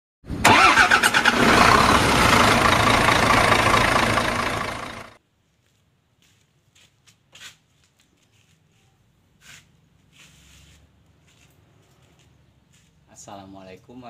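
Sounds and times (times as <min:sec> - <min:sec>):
engine starting and running: 0:00.3 - 0:05.2.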